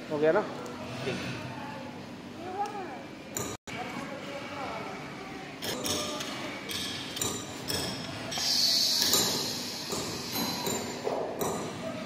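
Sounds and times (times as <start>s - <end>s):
compressed air hiss: 8.3s - 11.0s.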